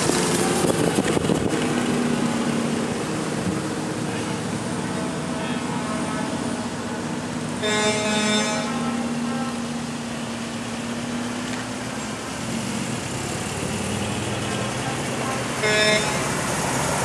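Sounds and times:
cars driving past: 0.0s - 17.0s
car horn: 7.6s - 9.6s, 15.2s - 16.4s.

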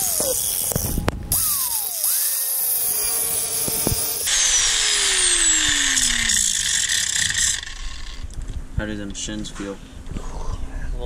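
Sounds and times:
angle grinder cutting steel: 0.0s - 8.4s.

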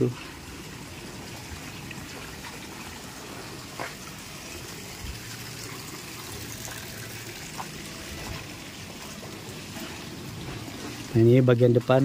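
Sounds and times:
water gushing into a tank: 0.0s - 12.0s.

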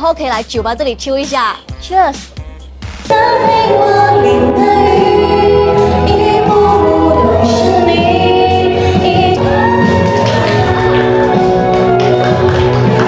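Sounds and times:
backing track music: 0.0s - 13.0s
woman singing into microphone: 3.1s - 11.4s.

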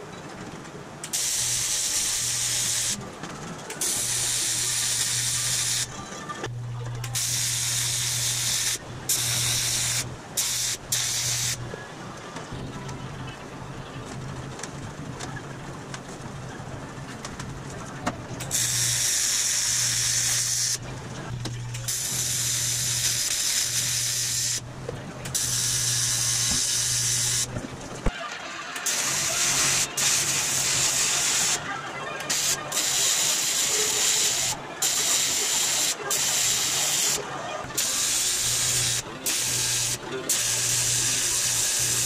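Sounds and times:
welding arc hissing: 1.1s - 3.0s, 3.8s - 6.0s, 7.2s - 11.6s, 18.5s - 20.8s, 21.9s - 24.6s, 25.4s - 27.5s, 28.8s - 31.6s, 32.3s - 37.2s, 37.8s - 42.0s.

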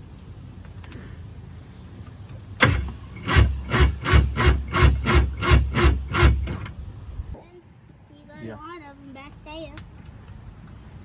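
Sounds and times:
electric starter cranking engine: 2.6s - 6.8s
sharp starter clunk: 2.6s - 6.8s.

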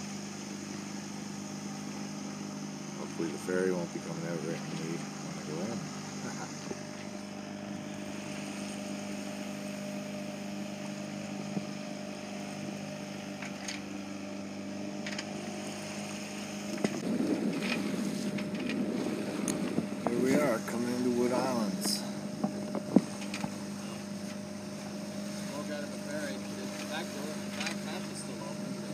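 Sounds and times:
boat engine droning: 0.0s - 28.9s
water noise: 0.0s - 28.9s
wind noise: 16.8s - 20.8s, 21.6s - 23.7s.

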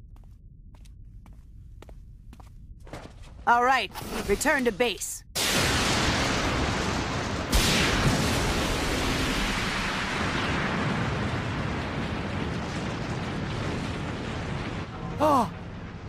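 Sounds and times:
explosion blast: 5.4s - 16.0s
long rumble: 5.8s - 16.0s.

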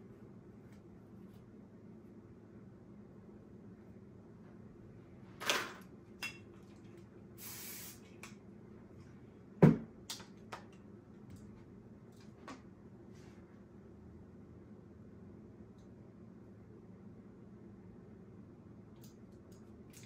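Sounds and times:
spray bottle hiss: 7.4s - 8.0s.

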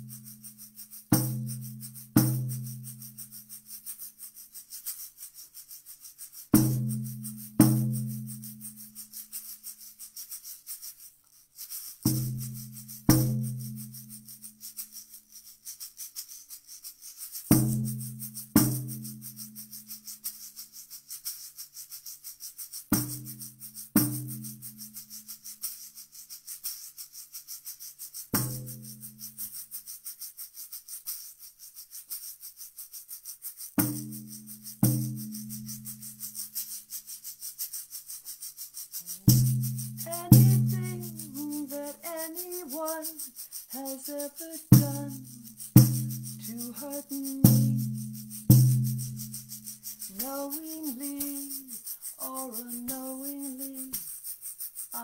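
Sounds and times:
shaker rattling: 0.0s - 55.0s.

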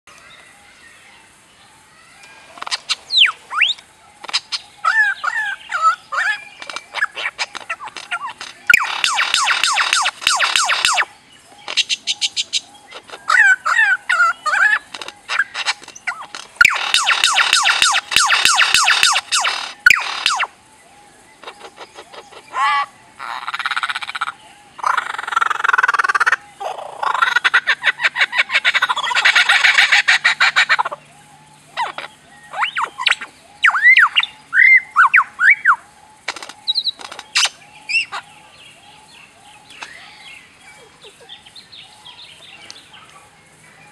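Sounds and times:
lyrebird singing: 0.1s - 43.9s
buzzy rattling bird trills: 2.0s - 43.9s
bird clicks and warble: 2.6s - 4.6s, 6.6s - 13.3s, 14.6s - 20.5s, 36.2s - 37.6s.

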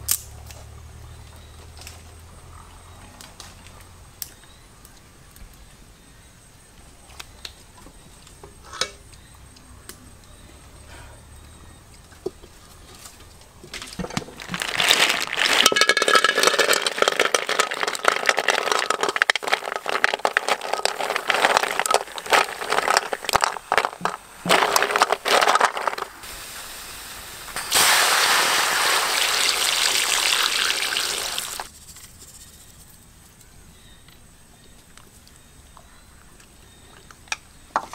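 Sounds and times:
snails sizzling in a wok: 14.6s - 31.7s.

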